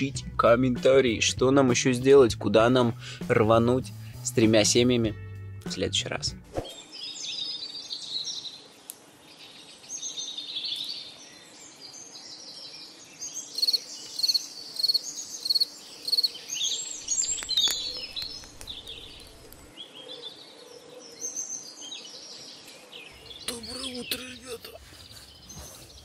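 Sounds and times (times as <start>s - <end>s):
wild birds singing and chirping: 6.6s - 26.0s.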